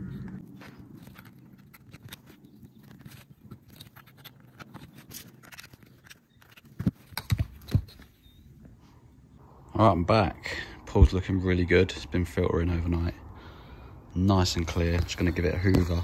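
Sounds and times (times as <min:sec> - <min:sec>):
plastic clicks and rustles of cables: 0:00.1 - 0:08.2.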